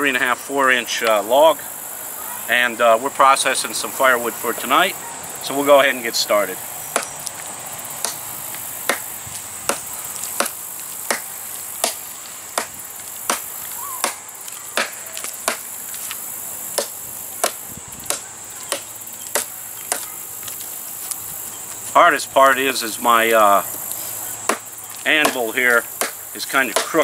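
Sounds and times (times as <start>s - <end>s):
high insect buzz: 0.0s - 27.0s
machete chopping into log: 7.0s - 7.2s, 8.0s - 8.2s, 8.9s - 12.0s, 12.6s - 14.2s, 14.8s - 15.7s, 16.8s - 20.1s, 24.5s - 27.0s.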